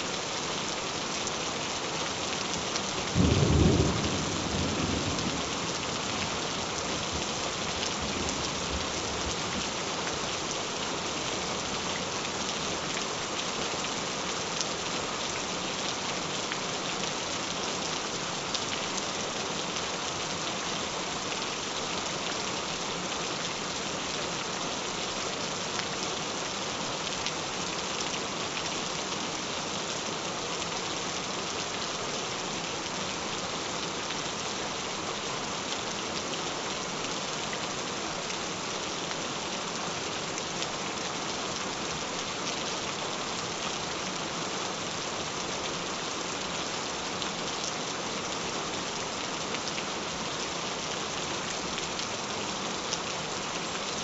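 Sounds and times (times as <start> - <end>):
gentle rain patter: 0.0 - 54.0.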